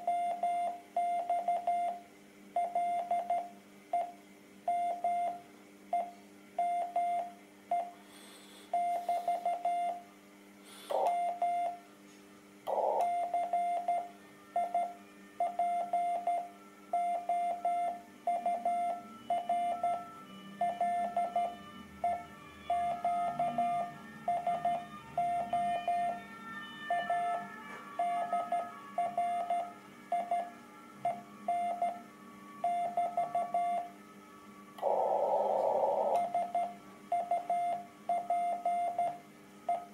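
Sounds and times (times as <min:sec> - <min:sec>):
morse code tone: 0:15.5 - 0:30.5, 0:32.6 - 0:33.9.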